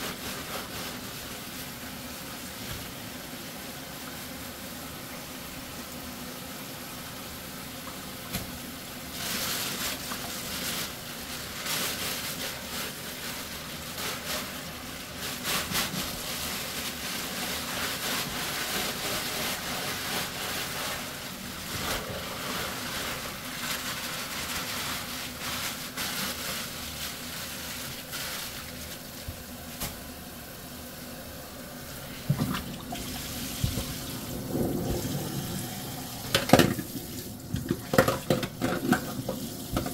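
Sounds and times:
plastic crinkling: 9.1s - 30.1s, 31.7s - 39.9s
water splashing into steel sink: 32.3s - 39.9s.

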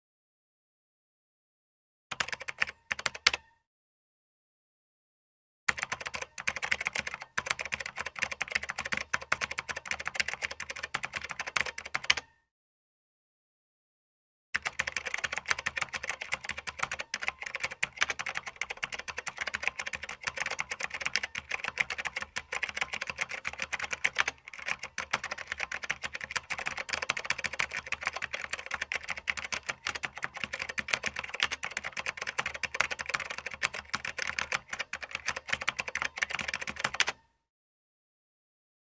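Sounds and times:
fast typing on keyboard: 2.1s - 3.4s, 5.7s - 12.3s, 14.6s - 37.2s.

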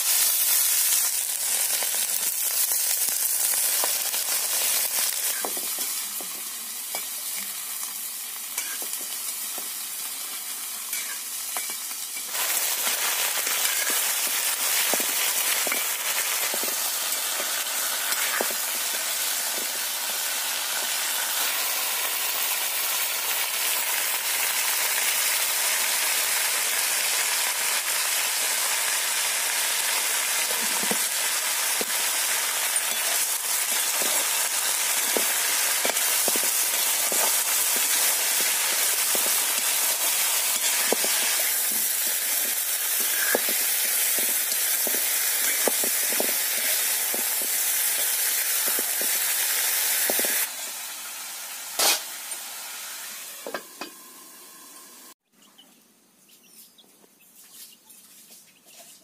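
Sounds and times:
vegetables sizzling in a pan: 0.0s - 55.2s
metal spatula scraping a pan: 8.6s - 8.9s, 10.9s - 11.8s, 32.2s - 48.9s.

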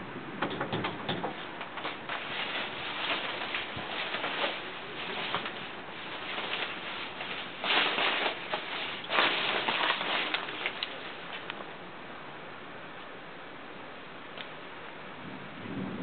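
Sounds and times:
rain pattering: 0.0s - 11.8s.

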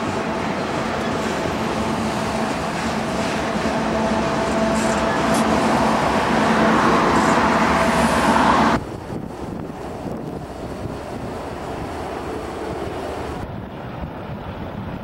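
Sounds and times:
diesel locomotive droning: 0.0s - 15.0s
car passing close: 2.8s - 8.8s.

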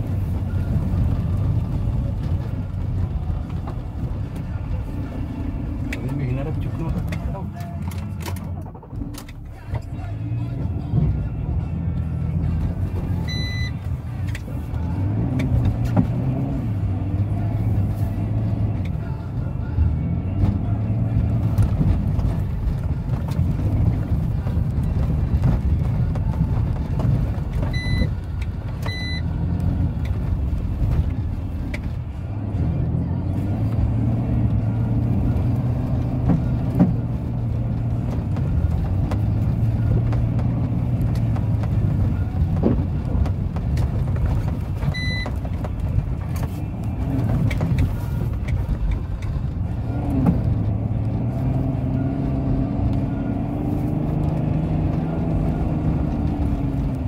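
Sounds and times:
diesel engine running: 0.0s - 57.0s
short electronic beeps: 13.2s - 13.8s, 27.8s - 28.2s, 28.9s - 29.3s, 44.9s - 45.3s.

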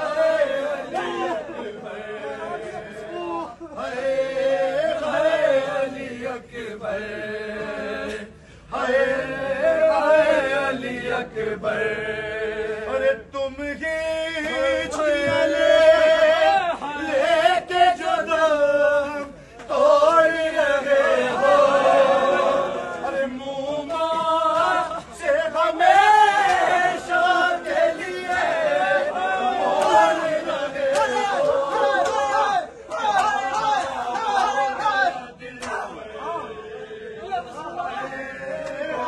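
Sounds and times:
men chanting a lament: 0.0s - 39.0s.

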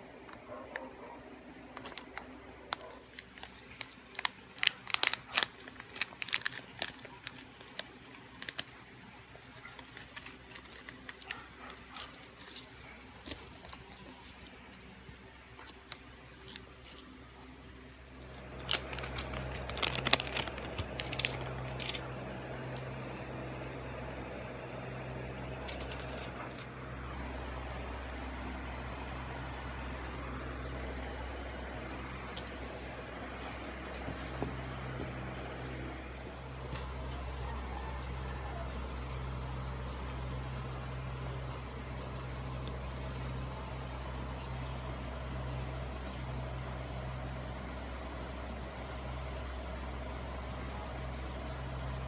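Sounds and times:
foil pouch crinkling: 1.7s - 14.5s, 15.6s - 17.0s, 18.2s - 22.0s, 25.6s - 26.6s.

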